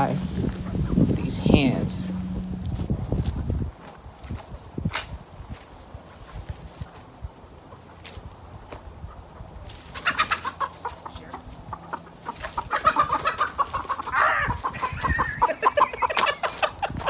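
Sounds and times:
hens clucking: 0:00.0 - 0:03.5, 0:06.1 - 0:08.2, 0:08.8 - 0:17.0
hen squawking: 0:09.9 - 0:15.8.

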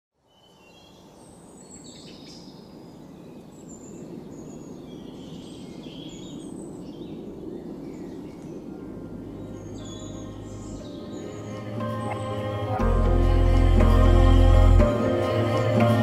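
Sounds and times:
birds chirping and calling: 0:00.4 - 0:13.9
low background rumble: 0:08.7 - 0:11.9.

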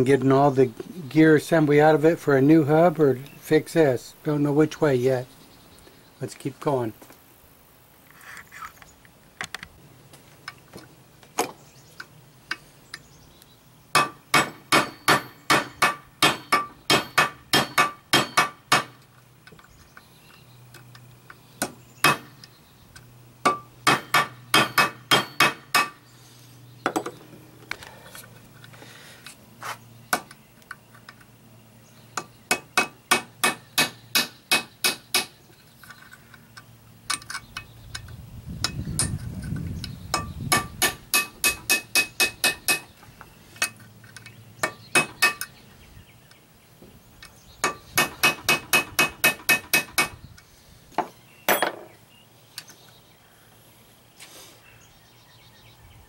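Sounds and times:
hammer striking metal punch: 0:14.0 - 0:19.0, 0:21.6 - 0:22.4, 0:23.4 - 0:26.0, 0:32.2 - 0:35.3, 0:40.1 - 0:42.9, 0:44.6 - 0:45.5, 0:47.6 - 0:50.1.

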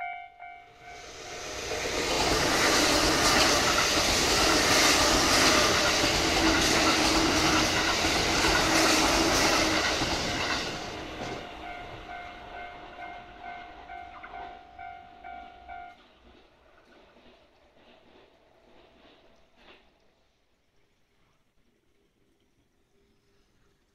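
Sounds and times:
crossing warning bell ringing: 0:00.0 - 0:01.9, 0:09.6 - 0:16.2
train wheels clattering on rails: 0:00.4 - 0:19.9.

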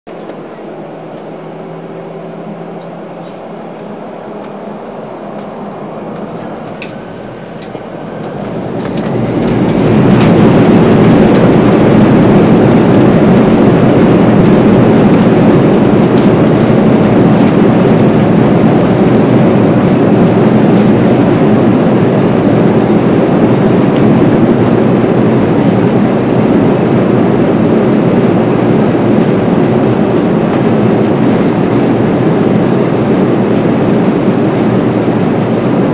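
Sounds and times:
jet engines roaring inside cabin: 0:00.1 - 0:35.9.

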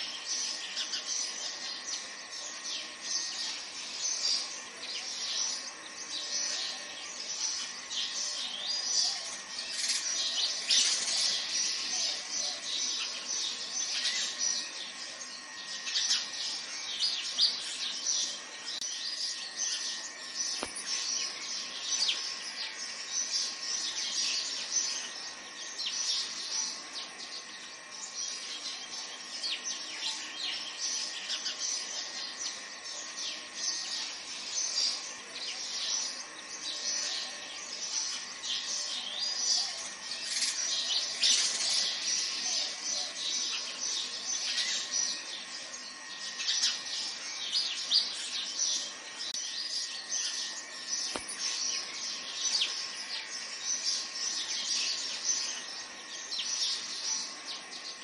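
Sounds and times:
birds chirping: 0:00.0 - 0:58.0.

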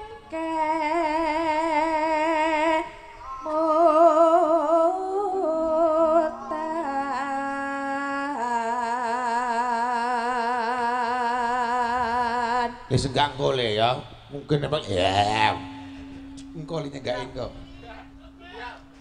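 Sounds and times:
woman singing with vibrato: 0:00.0 - 0:12.9.

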